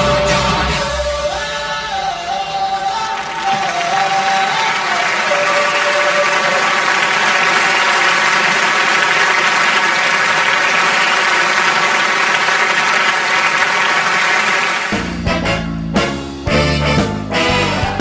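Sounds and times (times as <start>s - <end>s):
audience applauding: 2.0s - 15.2s.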